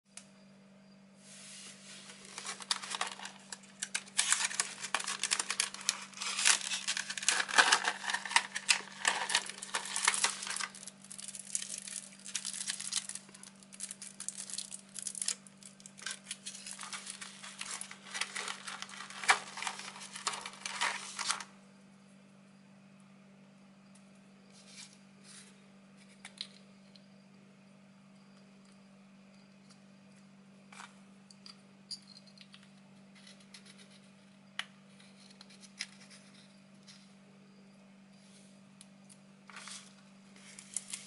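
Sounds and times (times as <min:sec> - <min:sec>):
plastic packaging crinkling: 0:01.9 - 0:21.5, 0:39.5 - 0:41.0.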